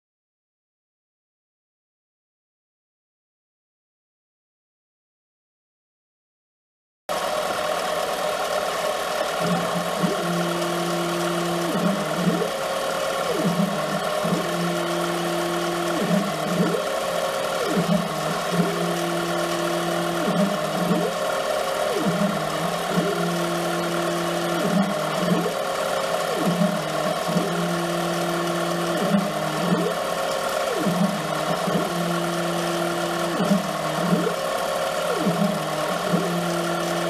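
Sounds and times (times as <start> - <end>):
lathe spindle whir: 7.1 - 37.0
stepper drive whine: 7.1 - 37.0.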